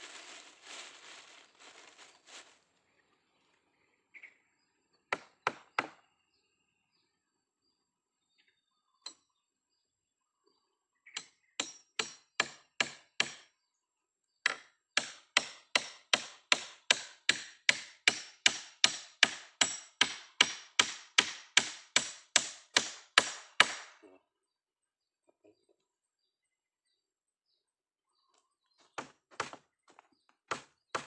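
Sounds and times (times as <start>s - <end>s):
hammer driving nail into wood: 11.6s - 13.4s, 14.5s - 23.9s.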